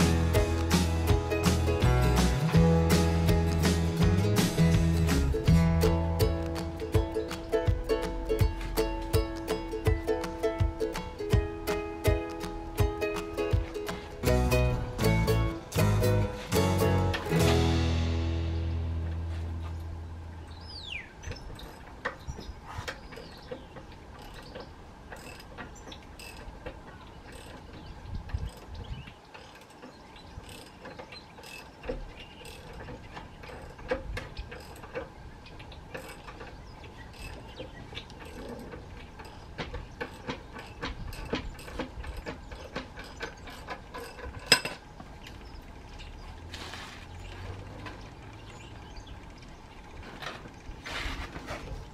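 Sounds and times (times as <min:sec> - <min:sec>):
metal clicks and clanks: 0:21.2 - 0:51.9.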